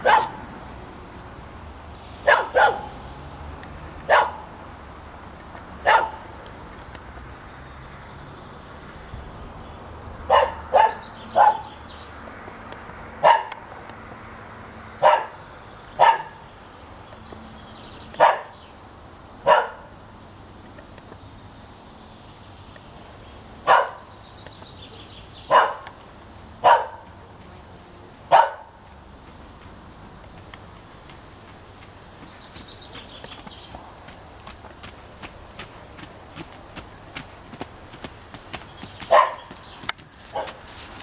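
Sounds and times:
dog barking: 0.0s - 0.4s, 2.2s - 3.0s, 4.1s - 4.5s, 5.8s - 6.3s, 10.3s - 11.7s, 13.2s - 13.6s, 15.0s - 15.4s, 16.0s - 16.4s, 18.2s - 18.6s, 19.4s - 19.9s, 23.7s - 24.1s, 25.5s - 25.9s, 26.6s - 27.1s, 28.3s - 28.8s, 39.1s - 39.5s, 40.3s - 40.6s.

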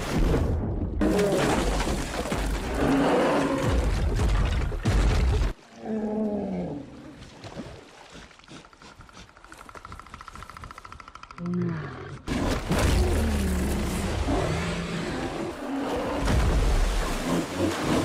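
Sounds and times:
animal growl: 11.3s - 16.2s.

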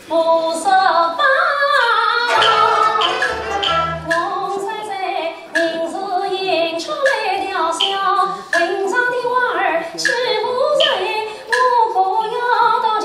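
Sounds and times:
woman singing opera: 0.1s - 3.0s, 4.1s - 13.0s
bowed strings and dulcimer band: 2.3s - 4.4s.

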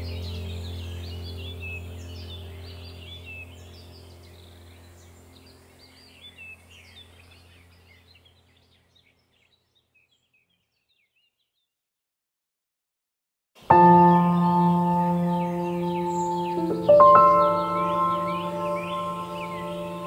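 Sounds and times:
low steady hum: 0.0s - 8.9s, 13.7s - 20.0s
birds chirping: 0.0s - 11.7s, 13.6s - 20.0s.

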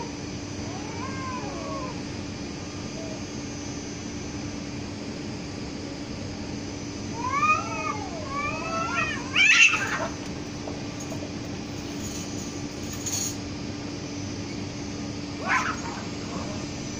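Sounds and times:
cat screeching: 0.0s - 2.1s, 7.1s - 10.2s, 15.4s - 16.6s
cats yowling: 0.0s - 3.4s, 7.0s - 11.4s, 15.3s - 16.9s.

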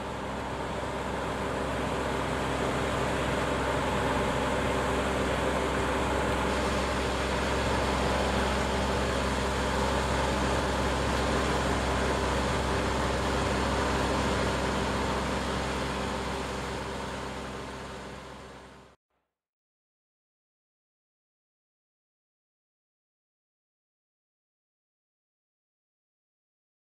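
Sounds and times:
tractor engine droning: 0.0s - 19.0s.

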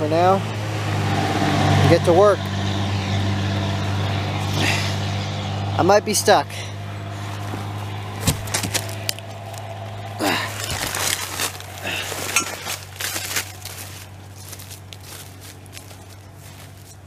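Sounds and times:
steady low hum: 0.0s - 17.0s
person grunting: 4.5s - 5.0s, 10.2s - 10.6s
footsteps on dry leaves: 7.0s - 17.0s
rustling of dry leaves and grass: 7.0s - 17.0s
handling clicks and knocks: 7.5s - 9.7s.

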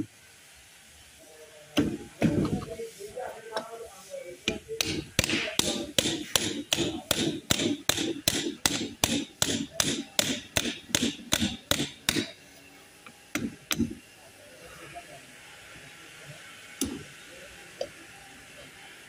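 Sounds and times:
hammer tapping on metal: 4.5s - 12.4s.

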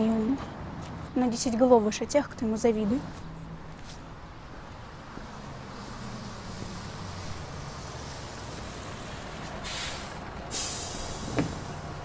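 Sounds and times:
bus engine running: 2.4s - 12.0s
compressed air hiss: 6.1s - 11.8s.

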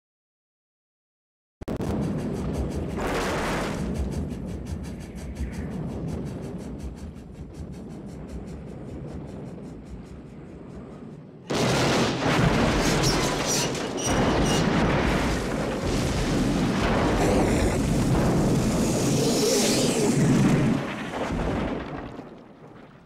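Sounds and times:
loud explosion blast: 11.5s - 23.0s
sharp cracks: 11.5s - 23.0s
heavy roar: 14.2s - 20.9s.

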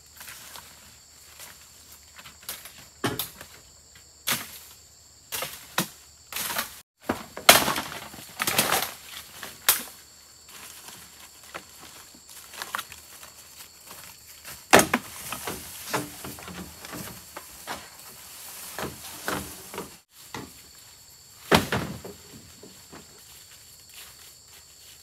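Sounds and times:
handling knocks and clattering: 14.7s - 20.6s, 21.4s - 23.2s.

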